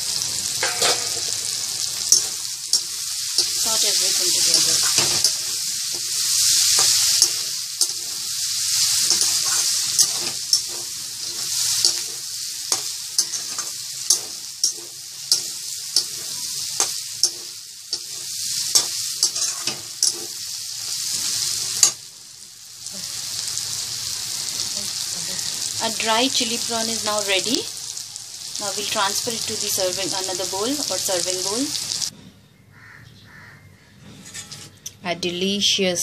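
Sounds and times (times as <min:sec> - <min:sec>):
food sizzling in a wok: 0:00.0 - 0:32.1
metal spatula scraping a wok: 0:00.5 - 0:22.0, 0:34.1 - 0:34.8.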